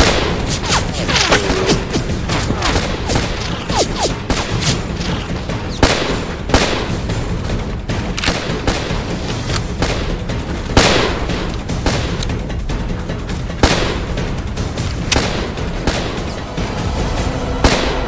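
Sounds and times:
rifle shots crackling: 0:00.0 - 0:07.0.

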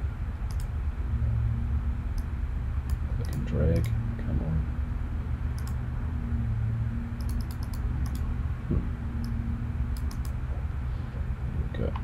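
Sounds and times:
low electrical hum: 0:00.0 - 0:12.0
computer mouse clicking: 0:00.5 - 0:00.7, 0:02.2 - 0:04.0, 0:05.6 - 0:05.8, 0:07.2 - 0:08.3, 0:09.2 - 0:10.4.

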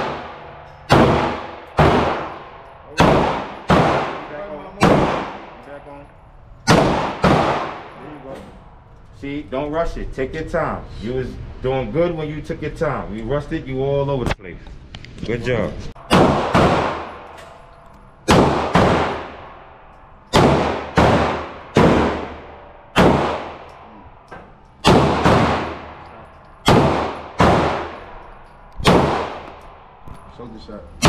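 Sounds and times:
pistol shots echoing indoors: 0:00.0 - 0:08.7, 0:16.0 - 0:30.3.

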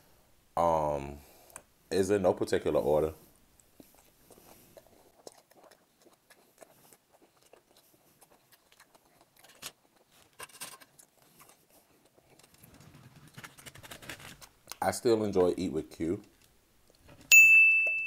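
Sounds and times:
chewing mouth clicks: 0:03.6 - 0:10.2, 0:10.9 - 0:12.8.

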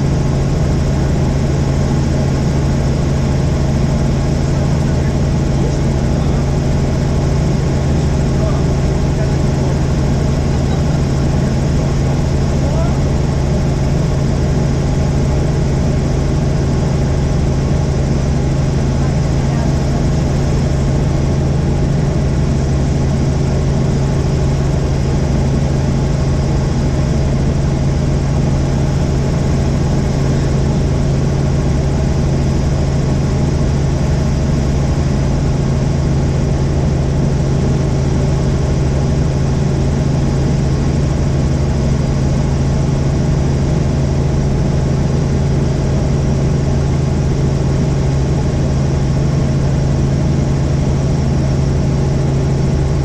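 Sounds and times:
helicopter drone: 0:00.0 - 0:53.0.

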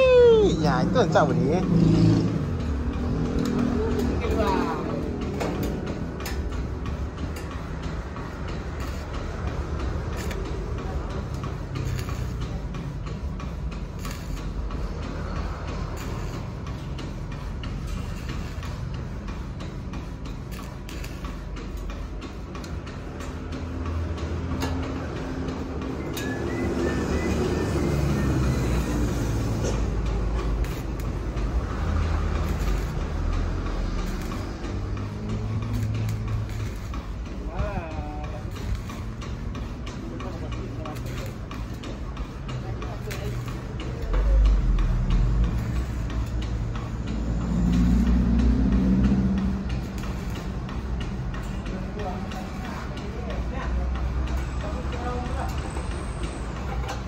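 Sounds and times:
stick welder striking an arc: 0:00.1 - 0:57.0
scattered clicks and taps: 0:00.9 - 0:57.0.

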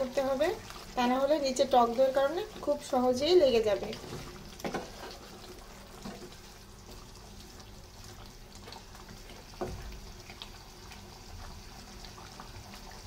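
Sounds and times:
chicken simmering in gravy: 0:00.0 - 0:13.0
wooden spatula scraping a pan: 0:03.6 - 0:05.4.

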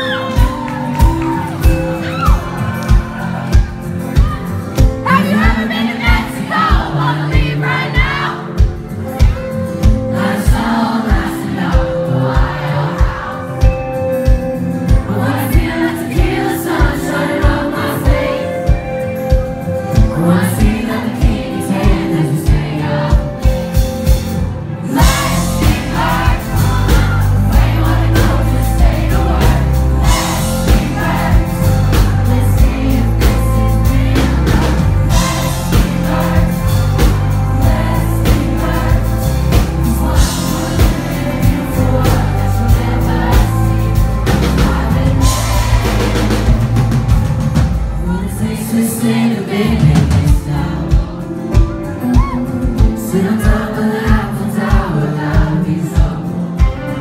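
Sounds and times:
acoustic guitar: 0:00.0 - 0:57.0
full band playing: 0:00.0 - 0:57.0
man singing: 0:19.9 - 0:23.4, 0:48.0 - 0:57.0.

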